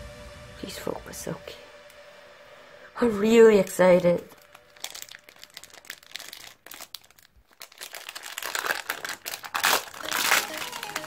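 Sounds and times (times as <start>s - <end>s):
plastic wrapper crinkling: 4.2s - 11.0s.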